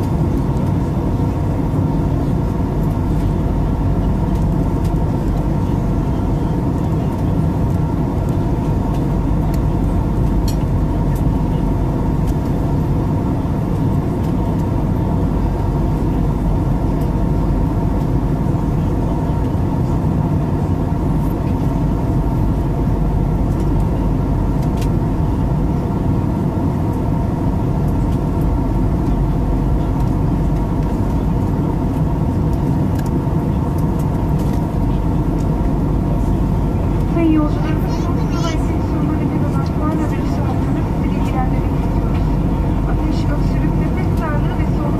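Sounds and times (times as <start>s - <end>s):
jet engines droning: 0.0s - 44.9s
steady hum tones: 0.0s - 44.9s.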